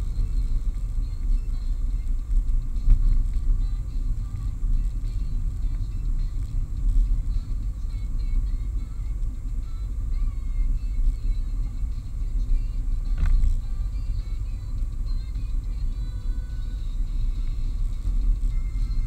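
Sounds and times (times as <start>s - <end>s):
car driving rumble from inside: 0.0s - 19.0s.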